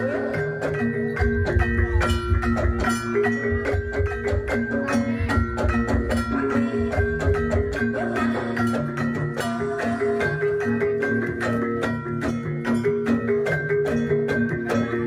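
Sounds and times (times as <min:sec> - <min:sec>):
gamelan music: 0:00.0 - 0:15.0
low drum beats: 0:00.6 - 0:09.4.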